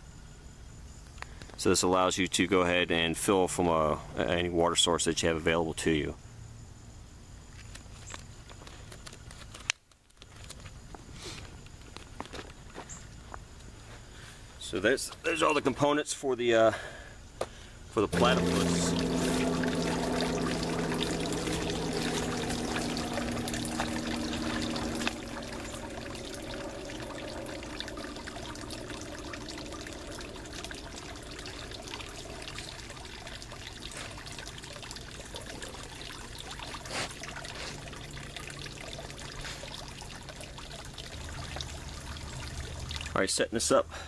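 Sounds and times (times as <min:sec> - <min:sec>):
steady low hum: 0:18.1 - 0:43.0
water trickling and pouring: 0:18.1 - 0:43.3.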